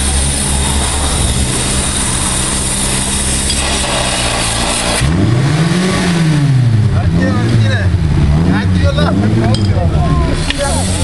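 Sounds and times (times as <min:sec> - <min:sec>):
fire pump engine running: 0:00.0 - 0:05.2, 0:05.8 - 0:11.0.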